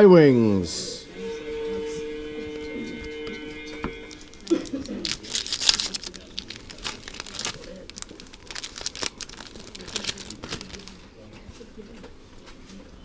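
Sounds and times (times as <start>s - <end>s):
foil wrapper crinkling and tearing: 4.4s - 11.1s.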